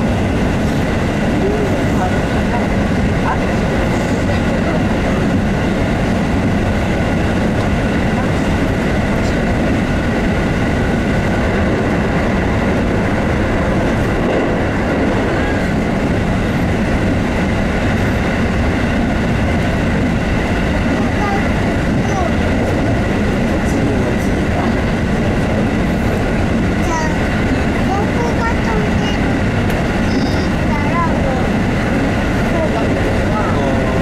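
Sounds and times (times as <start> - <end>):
train wheels rumbling on rail: 0.0 - 34.0.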